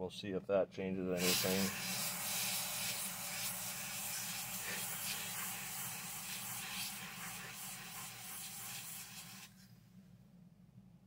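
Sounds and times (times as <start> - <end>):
aerosol spray hissing: 1.2 - 9.6
steady low hum: 9.5 - 11.0.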